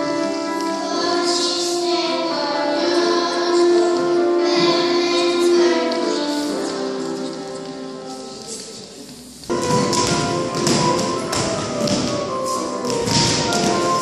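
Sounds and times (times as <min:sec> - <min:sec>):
children singing: 0:00.0 - 0:14.0
instrumental backing music: 0:00.0 - 0:14.0.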